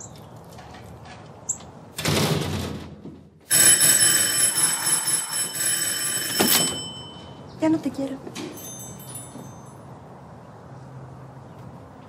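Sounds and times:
electric bell ringing: 0:03.5 - 0:07.5, 0:08.6 - 0:09.9.

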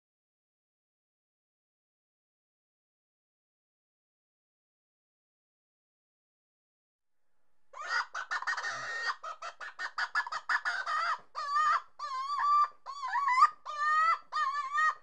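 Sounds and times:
fowl clucking: 0:07.8 - 0:15.0
fowl wavering calls: 0:07.8 - 0:15.0.

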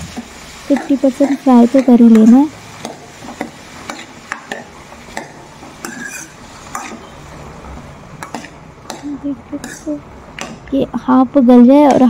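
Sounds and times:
vegetables frying in oil: 0:00.0 - 0:12.0
metal spoon scraping a pan: 0:00.2 - 0:07.2, 0:08.2 - 0:10.0.

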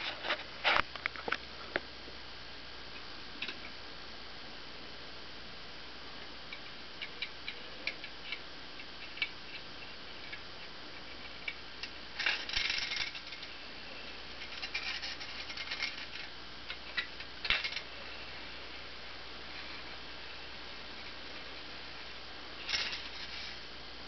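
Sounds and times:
tin toy clicking and rattling: 0:11.2 - 0:13.5, 0:14.4 - 0:17.8, 0:22.6 - 0:23.5.

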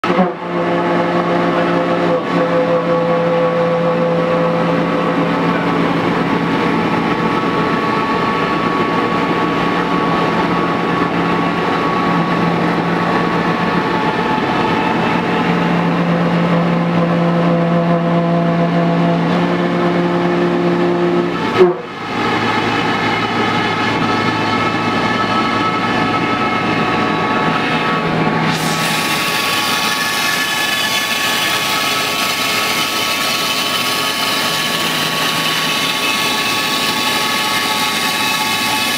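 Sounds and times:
router spindle whining: 0:20.7 - 0:38.9.

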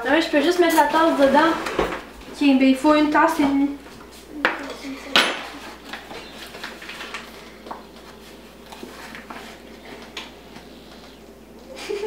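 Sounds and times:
paper flour bag rustling: 0:05.5 - 0:11.1.

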